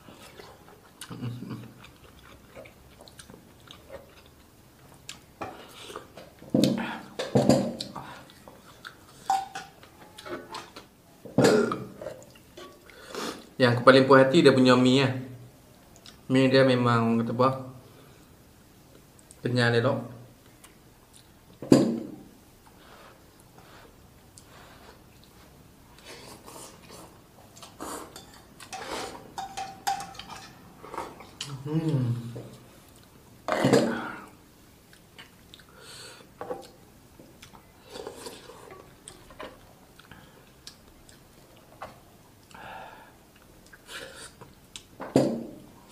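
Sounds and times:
man chewing noodles: 0.0 - 6.1, 34.8 - 42.6.

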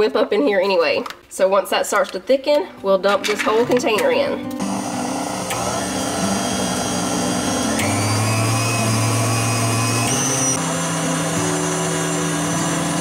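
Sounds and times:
stand mixer whipping cream: 4.6 - 13.0.

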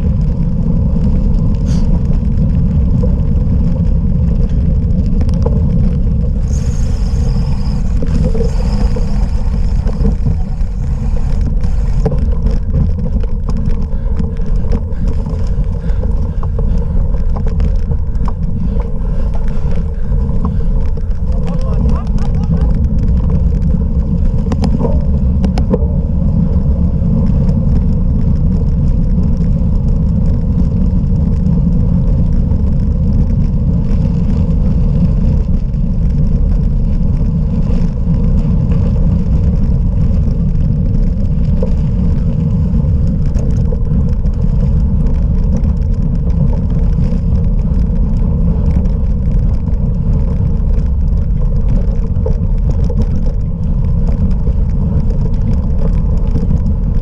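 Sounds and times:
bicycle tyre noise: 0.0 - 57.0
wind buffeting: 0.0 - 57.0.

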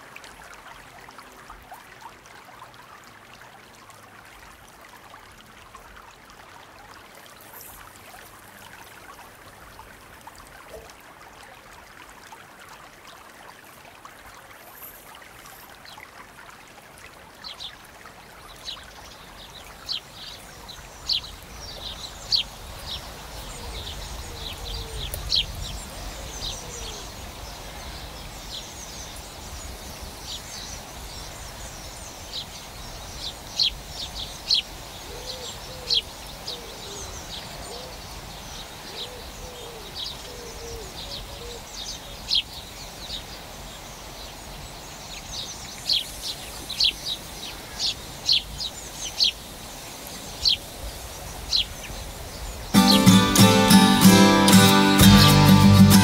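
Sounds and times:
outdoor ambience hiss: 0.0 - 56.0
birds chirping: 18.5 - 56.0.

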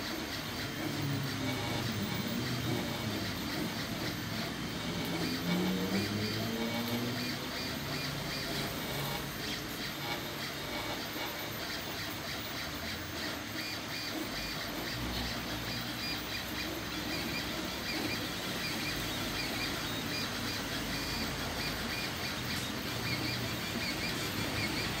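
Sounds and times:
cooling fans whirring: 0.0 - 25.0
stepper motors whining and chirping: 0.0 - 25.0.

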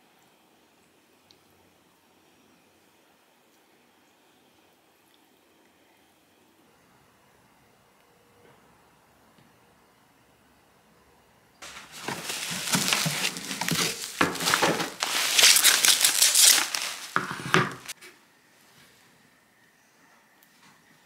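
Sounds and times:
packaging crinkling and rustling: 11.6 - 18.0.

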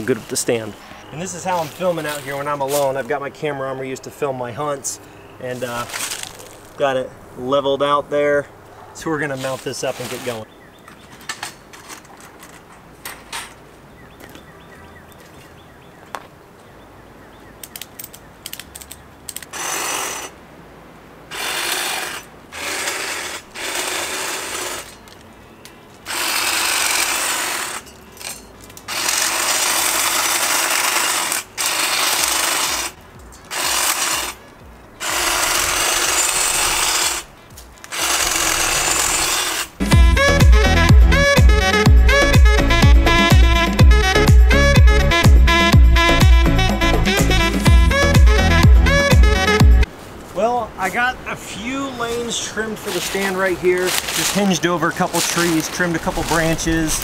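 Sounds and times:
electric trimmer cutting branches: 5.8 - 6.8, 19.4 - 20.4, 21.3 - 25.2, 26.0 - 49.6.

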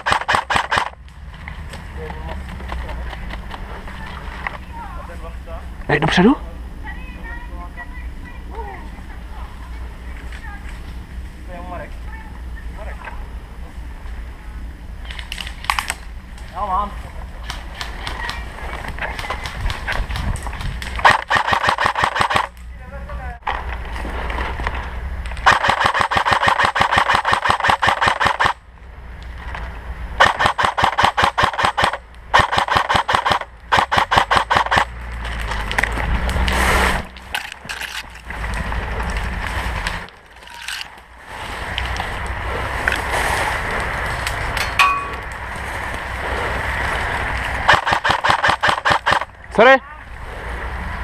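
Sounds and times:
rapid airsoft gunfire: 0.0 - 1.0, 19.1 - 22.6, 25.4 - 28.6, 30.2 - 35.0, 47.6 - 49.3
tracked vehicle diesel engine rumble: 0.9 - 21.1, 34.8 - 47.7.

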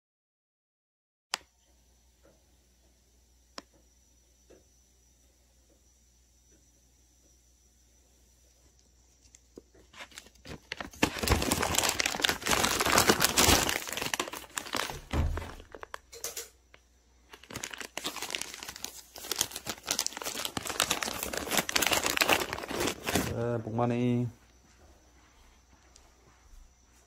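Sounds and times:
plastic bag crinkling: 9.8 - 16.3, 17.3 - 23.6.

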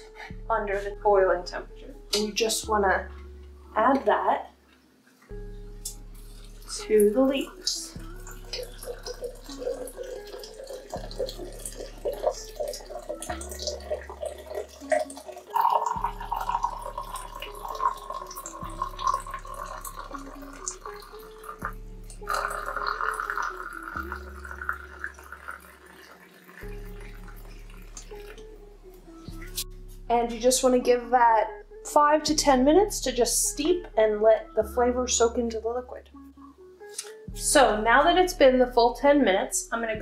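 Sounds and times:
water pouring into glass jar: 6.1 - 28.6.

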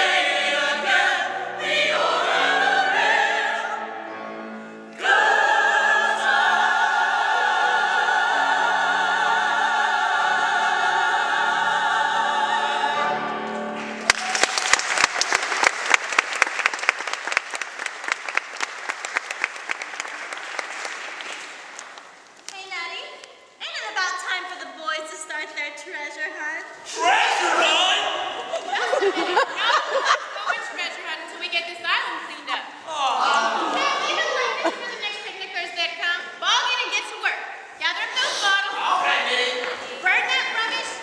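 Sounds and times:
audience applause: 13.8 - 22.2.

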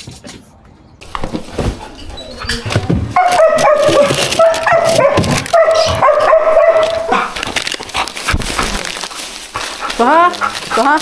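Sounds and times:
plastic wrappers crinkling: 1.3 - 11.0
dog whining: 3.2 - 7.4.

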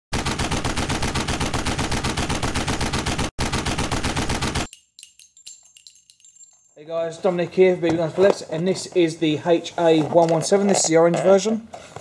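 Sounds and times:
rapid automatic gunfire: 0.1 - 4.7.

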